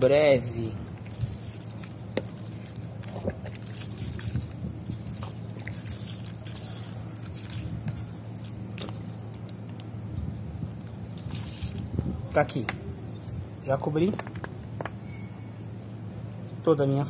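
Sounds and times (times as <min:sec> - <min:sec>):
liquid pouring and splashing: 0:00.9 - 0:09.8, 0:11.2 - 0:12.0.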